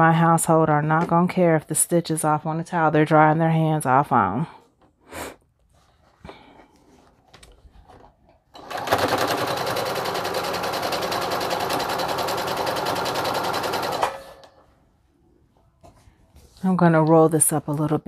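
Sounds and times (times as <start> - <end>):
sewing machine stitching: 8.5 - 14.5.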